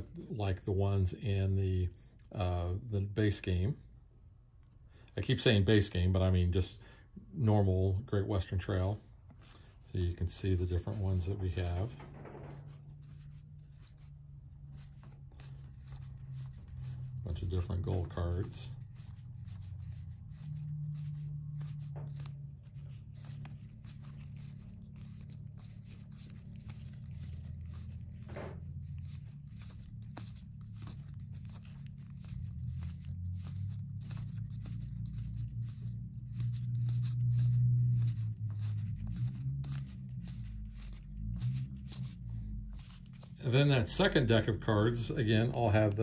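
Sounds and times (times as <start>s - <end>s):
playing cards clicking and rubbing: 8.4s - 46.0s
low hum: 9.0s - 45.6s.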